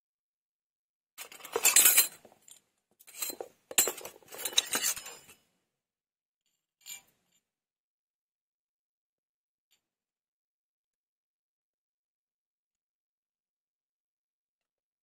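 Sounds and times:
small metal kitchenware clinking: 1.2s - 5.4s.

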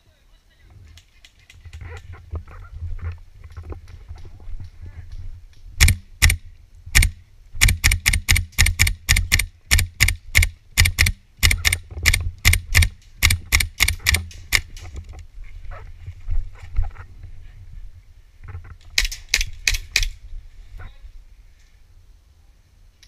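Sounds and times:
airsoft rifle shots: 5.8s - 14.8s.

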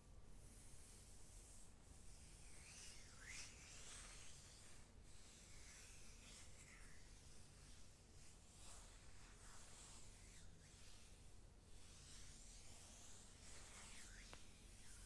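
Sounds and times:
hands rubbing skin: 3.8s - 15.0s.

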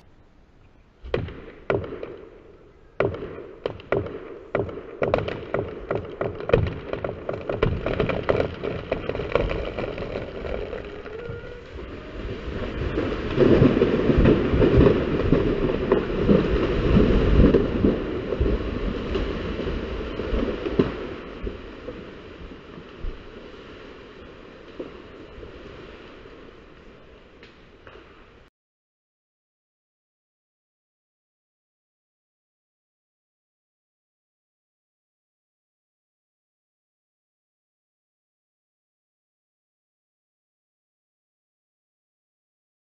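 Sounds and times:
tree trunk cracking: 3.0s - 23.6s
tree crashing through branches: 3.0s - 28.5s.

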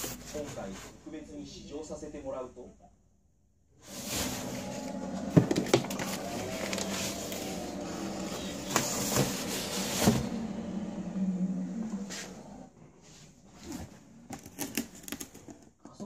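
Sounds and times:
cardboard packaging rustling: 3.9s - 10.5s, 13.6s - 15.7s
low hum: 4.1s - 12.9s.

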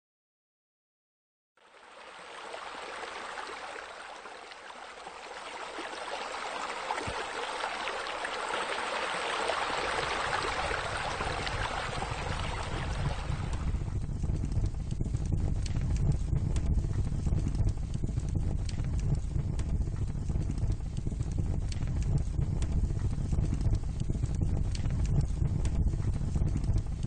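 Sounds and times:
water spilling into pool: 1.6s - 13.8s
fire pit crackling: 2.2s - 14.6s.

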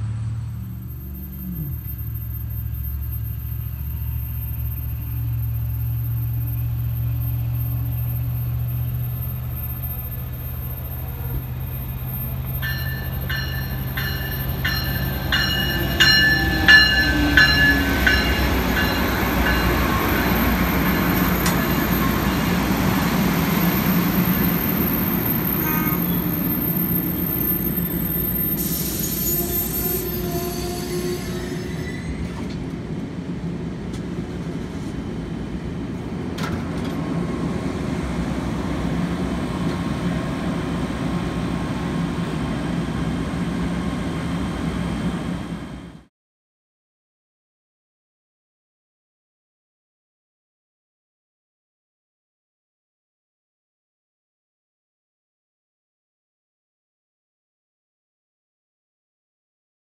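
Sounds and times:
diesel locomotive whine: 0.0s - 46.1s
train wheels rumbling on rail: 0.0s - 46.1s.

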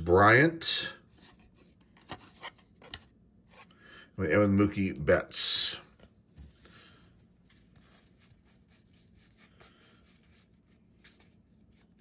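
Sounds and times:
trading cards being handled: 5.8s - 12.0s.

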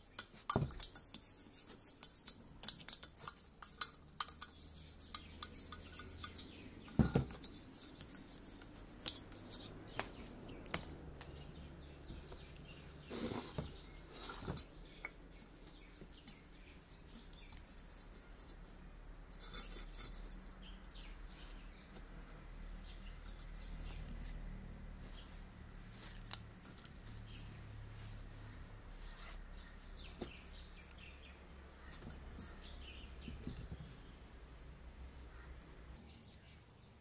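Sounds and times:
brush scraping metal: 0.0s - 10.6s, 11.8s - 30.7s
metal lamp parts clinking: 2.0s - 7.6s.

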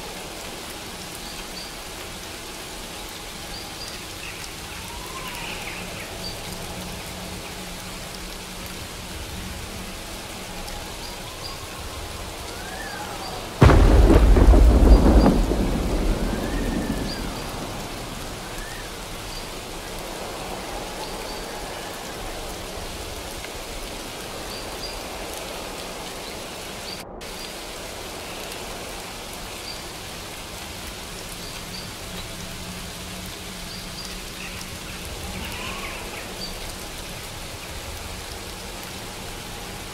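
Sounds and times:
steady rain falling: 0.0s - 39.9s
thunder clap rumbling: 11.8s - 22.9s.

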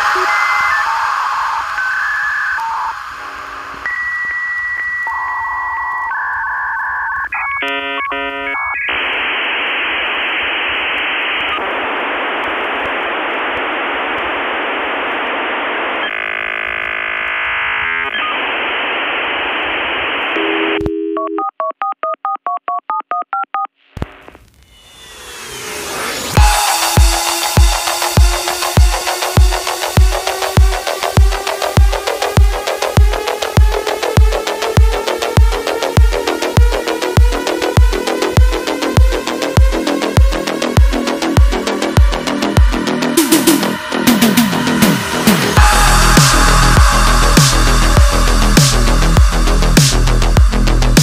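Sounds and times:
hissing line noise: 0.0s - 5.5s, 8.8s - 20.4s, 24.0s - 51.0s
held high tone: 0.0s - 5.9s, 43.2s - 51.0s
telephone line beeps: 0.0s - 9.0s, 20.4s - 23.7s.

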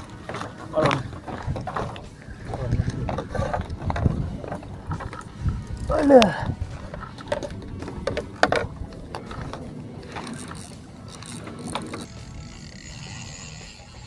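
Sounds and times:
fishing reel gears clicking: 10.2s - 14.0s.

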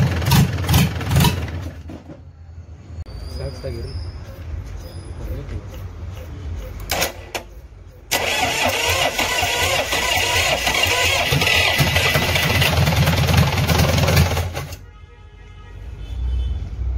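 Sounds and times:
diesel engine running: 0.0s - 2.0s, 6.8s - 14.8s.

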